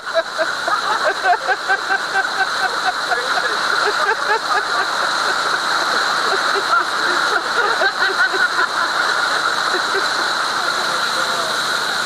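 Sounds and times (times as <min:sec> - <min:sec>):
churning water of boat wake: 0:00.0 - 0:12.0
voices: 0:00.5 - 0:12.0.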